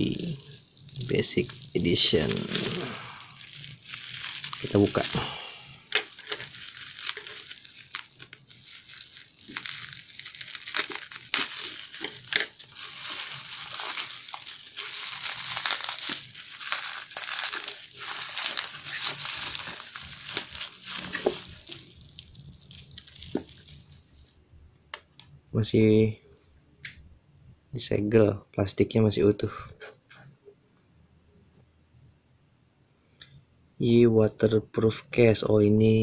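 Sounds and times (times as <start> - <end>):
bubble wrap crinkling and crackling: 0.0 - 24.4.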